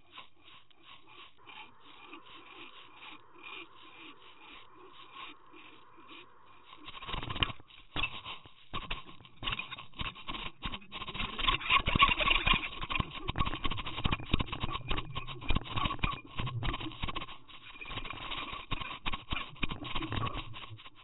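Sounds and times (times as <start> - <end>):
steady high whine: 0.0 - 13.4.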